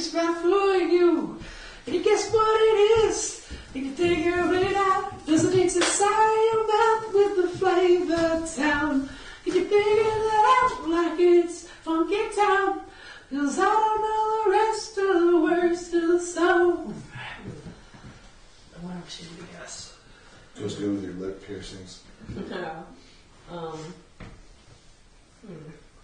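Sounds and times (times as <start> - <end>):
person singing unaccompanied: 0.0 - 17.0.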